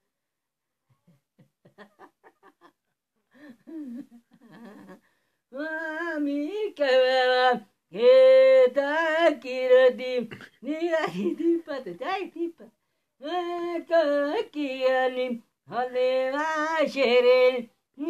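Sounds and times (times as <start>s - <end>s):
man chuckling: 0.9s - 5.0s.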